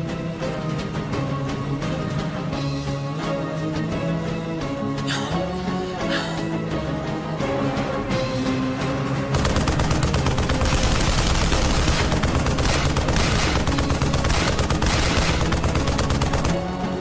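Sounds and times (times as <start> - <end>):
dramatic background music: 0.0 - 17.0
rapid automatic gunfire: 9.3 - 17.0.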